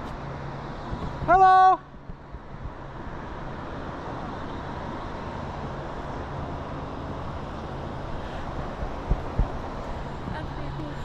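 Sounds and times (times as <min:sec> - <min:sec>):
constant rushing: 0:00.0 - 0:11.0.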